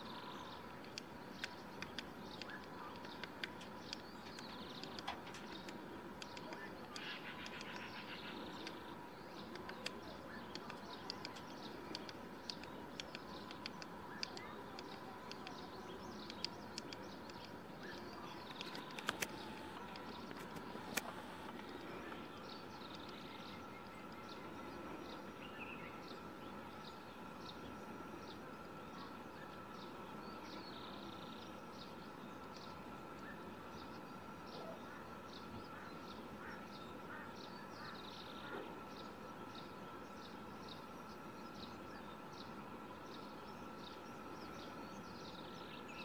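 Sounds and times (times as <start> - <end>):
birds chirping: 0.0 - 46.0
woodpecker tapping on bark: 0.8 - 8.8, 9.4 - 21.6.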